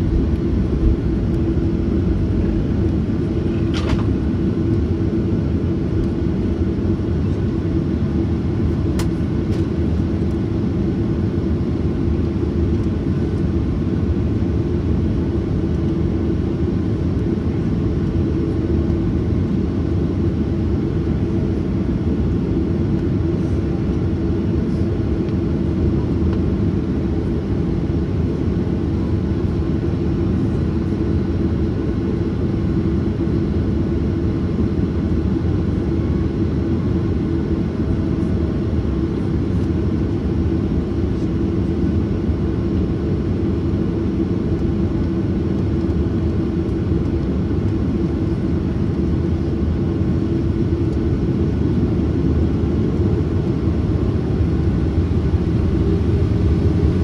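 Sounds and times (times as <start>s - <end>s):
jet engines rumbling in cabin: 0.0s - 57.0s.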